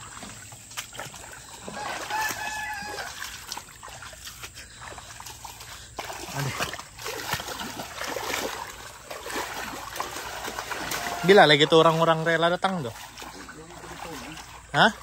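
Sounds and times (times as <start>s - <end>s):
bare feet splashing in water: 0.0s - 15.0s
rooster crowing: 1.6s - 3.4s, 10.4s - 11.5s.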